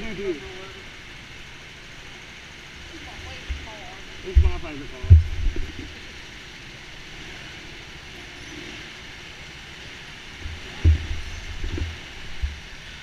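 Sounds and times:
dull low knocks: 0:03.3 - 0:06.0, 0:10.4 - 0:12.9.

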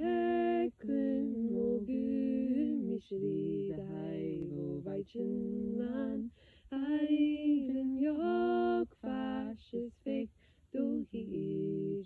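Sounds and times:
person singing unaccompanied: 0:00.0 - 0:12.0.

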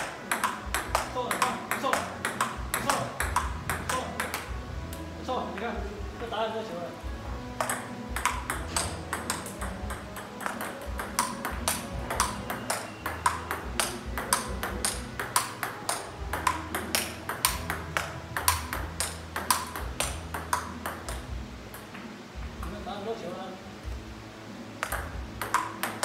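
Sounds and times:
ball bouncing on table: 0:00.0 - 0:04.6, 0:07.6 - 0:22.8, 0:24.8 - 0:26.0
ping pong ball clicking off paddles: 0:00.0 - 0:05.0, 0:07.5 - 0:22.0, 0:24.8 - 0:26.0.

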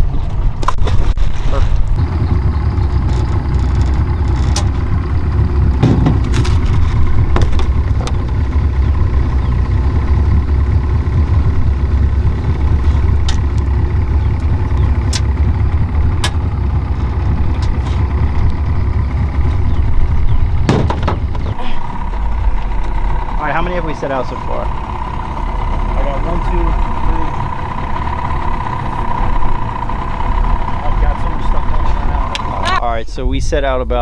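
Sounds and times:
outboard motor running: 0:00.2 - 0:33.0
sharp knocks: 0:05.6 - 0:08.4, 0:20.6 - 0:21.6.

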